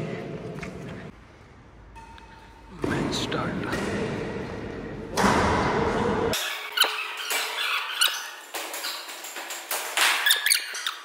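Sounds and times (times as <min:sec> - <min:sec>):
shoes squeaking on court floor: 0:06.4 - 0:11.0.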